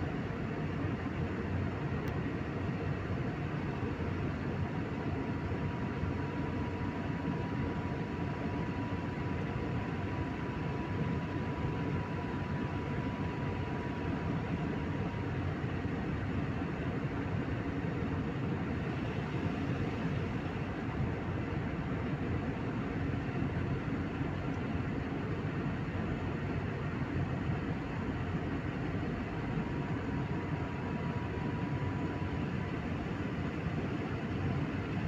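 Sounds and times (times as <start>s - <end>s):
jet cabin engine rush: 0.0s - 35.0s
faint high whine: 23.1s - 35.0s.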